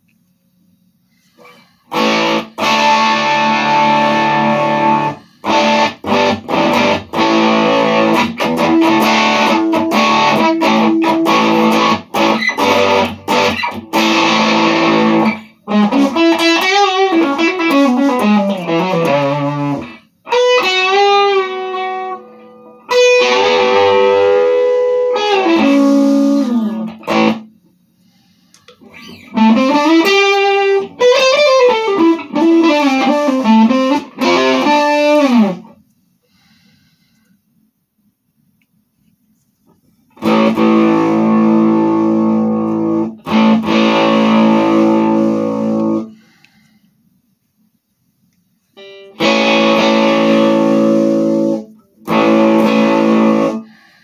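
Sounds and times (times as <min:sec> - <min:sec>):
electric guitar playing: 0:01.9 - 0:27.6, 0:28.8 - 0:35.8, 0:40.2 - 0:46.2, 0:48.8 - 0:54.0.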